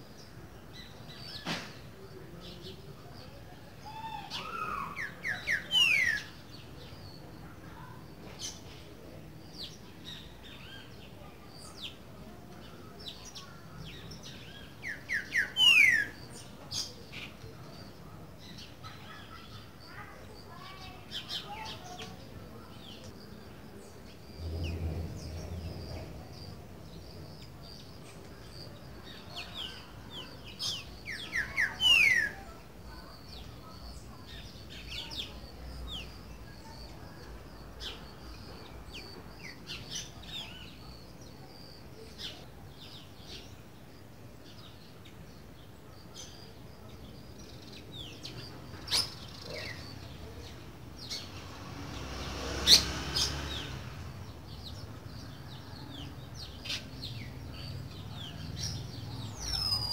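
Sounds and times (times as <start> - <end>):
faint bird chirps: 54.6 - 59.9.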